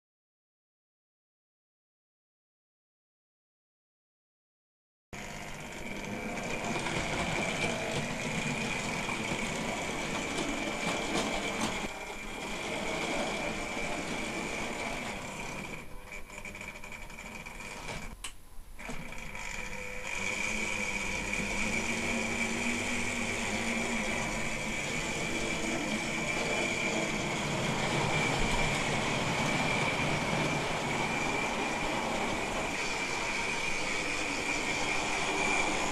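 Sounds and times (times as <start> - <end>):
electric motor whine: 5.2 - 18.2, 18.8 - 35.9
wheels rattling on rail: 5.8 - 15.9, 21.4 - 35.9.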